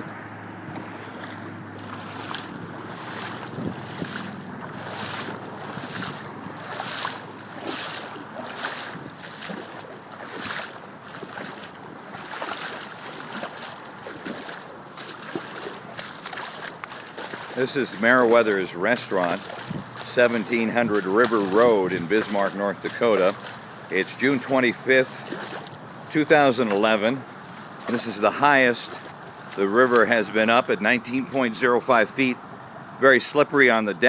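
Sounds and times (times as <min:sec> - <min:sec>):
wind rushing over microphone: 0:00.6 - 0:09.2, 0:19.5 - 0:21.0.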